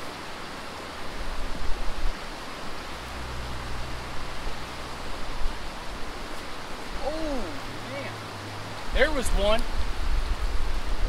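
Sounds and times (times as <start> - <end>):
creek rushing over rocks: 0.0 - 11.0
low rumble: 2.7 - 11.0.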